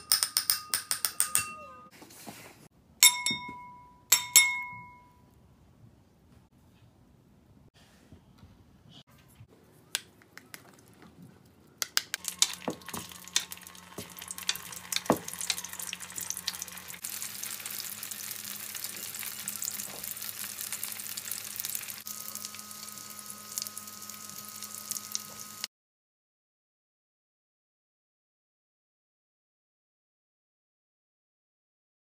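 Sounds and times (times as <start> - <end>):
spoon clicking in glass bowl: 0.0 - 1.7, 3.0 - 5.0
dumplings sizzling in oil: 12.2 - 25.7.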